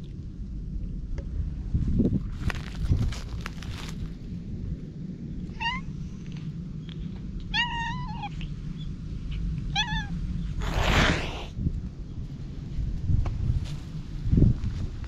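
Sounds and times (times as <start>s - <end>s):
rustling: 2.2s - 4.3s
cat meowing: 5.5s - 5.9s, 7.5s - 8.5s, 9.7s - 11.5s.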